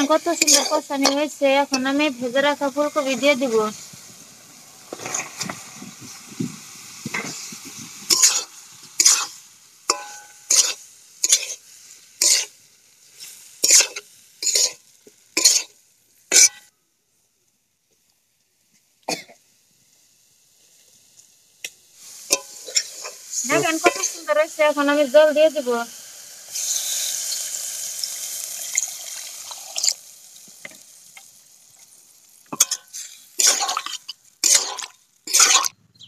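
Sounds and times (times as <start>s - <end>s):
spatula scraping metal pan: 0.0s - 2.0s, 8.1s - 11.6s, 12.2s - 12.5s, 13.2s - 14.8s, 15.4s - 15.7s, 22.3s - 24.3s, 32.5s - 35.8s
faint sizzle: 0.0s - 36.0s.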